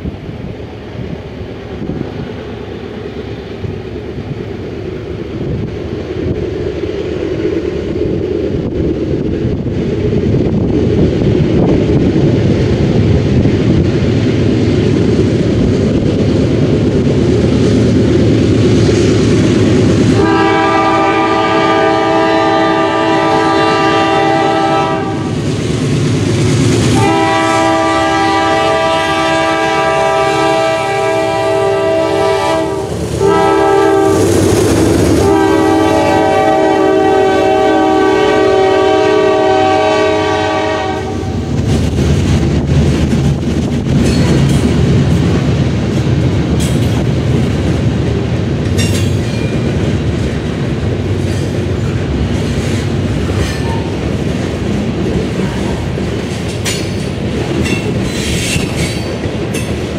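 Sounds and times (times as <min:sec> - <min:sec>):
train rumbling: 0:00.0 - 0:59.9
wheels clacking on rails: 0:00.0 - 0:59.9
locomotive air horn blasts: 0:20.2 - 0:25.4, 0:26.9 - 0:34.3, 0:35.2 - 0:41.4.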